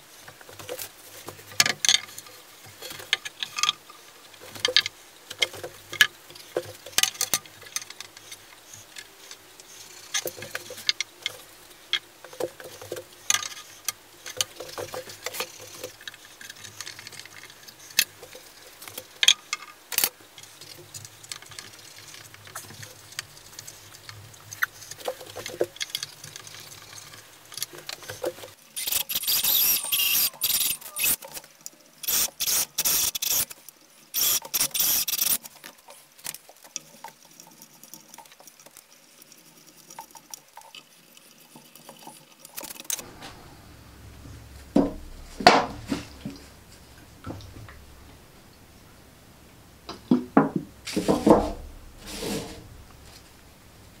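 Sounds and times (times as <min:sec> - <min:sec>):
power drill boring wood: 0:28.8 - 0:31.2, 0:32.1 - 0:33.5, 0:34.2 - 0:35.4
wooden parts knocking: 0:44.7 - 0:46.4, 0:49.9 - 0:51.9.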